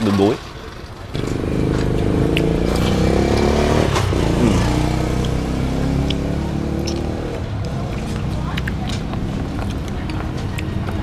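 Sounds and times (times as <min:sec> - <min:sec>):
small motorbike engine running: 0:01.2 - 0:04.6.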